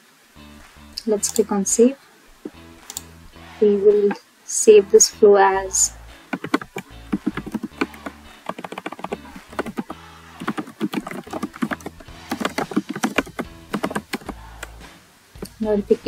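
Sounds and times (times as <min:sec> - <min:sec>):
keyboard typing clicks: 0:06.3 - 0:14.7.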